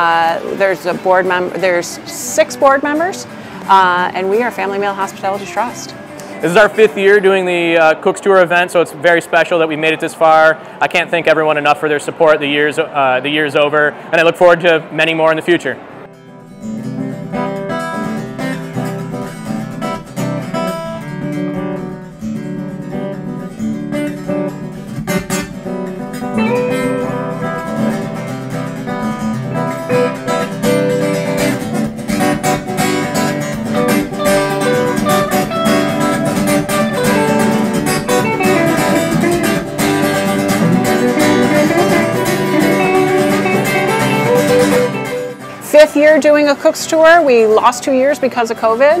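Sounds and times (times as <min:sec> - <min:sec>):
acoustic guitar music: 0:00.0 - 0:49.0.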